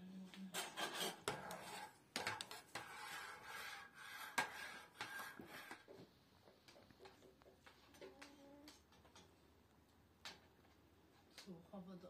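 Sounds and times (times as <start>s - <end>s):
metal spoons scraping bowls: 0.5s - 6.0s.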